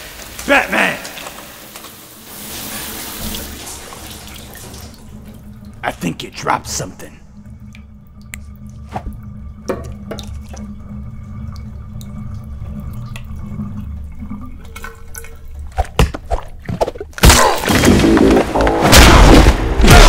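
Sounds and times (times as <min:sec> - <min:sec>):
low steady hum: 0:04.5 - 0:15.7
water dripping on tiles: 0:07.4 - 0:09.2
loud music: 0:17.7 - 0:20.0.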